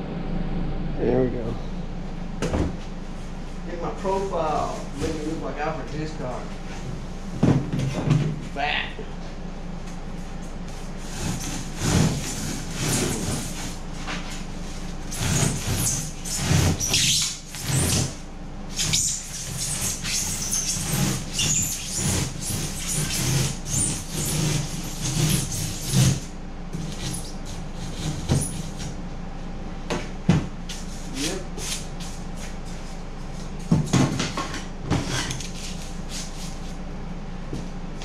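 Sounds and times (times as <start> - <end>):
hand saw cutting foam: 11.0 - 13.8, 15.1 - 28.9.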